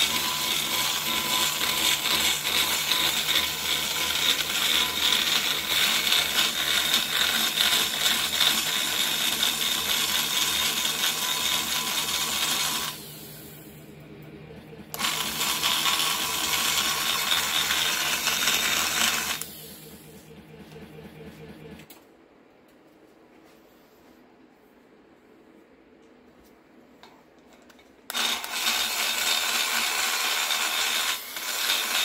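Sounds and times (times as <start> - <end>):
die grinder grinding metal: 0.0 - 13.2, 14.9 - 19.6, 28.1 - 32.0.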